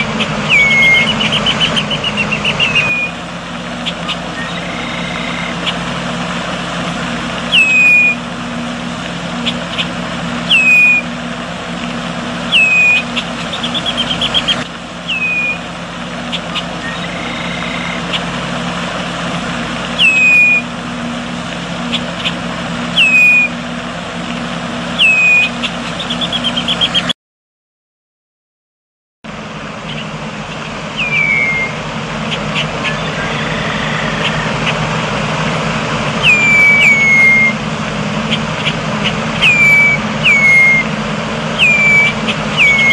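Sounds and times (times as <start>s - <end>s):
bird chattering run: 0.0s - 3.2s, 3.8s - 5.9s, 7.5s - 8.2s, 9.4s - 11.1s, 12.4s - 15.6s, 16.2s - 18.4s, 19.9s - 20.6s, 25.0s - 27.1s, 29.8s - 34.9s, 36.2s - 37.6s, 38.2s - 40.8s, 41.6s - 42.9s
blackbird whistled calls: 0.0s - 3.2s, 3.8s - 5.9s, 7.5s - 8.3s, 9.4s - 11.2s, 12.4s - 18.4s, 20.0s - 20.7s, 21.8s - 23.6s, 24.9s - 27.1s, 29.8s - 34.8s, 36.2s - 37.6s, 38.2s - 42.9s
low hum: 0.0s - 27.0s, 29.3s - 42.9s.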